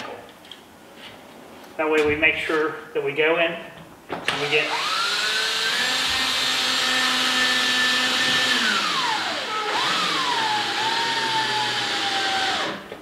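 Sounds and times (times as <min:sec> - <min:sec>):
power drill driving screw: 0:04.3 - 0:12.8.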